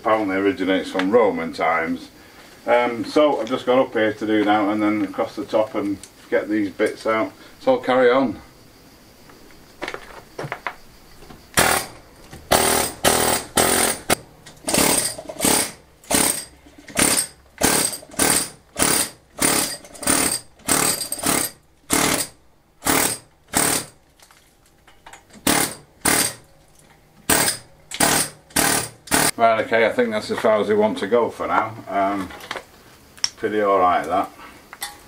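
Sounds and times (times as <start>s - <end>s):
demolition hammer chiselling stone: 11.6s - 24.0s, 25.4s - 26.4s, 27.3s - 29.3s.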